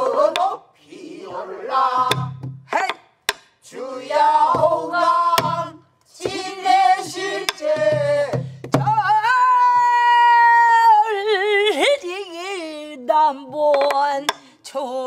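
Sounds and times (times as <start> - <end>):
voices singing: 0.0 - 3.0, 3.6 - 11.5
woman singing with heavy vibrato: 7.6 - 15.0.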